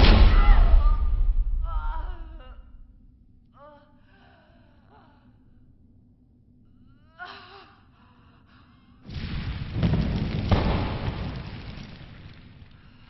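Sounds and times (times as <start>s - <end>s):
bodies crashing onto dirt: 9.1s - 12.6s.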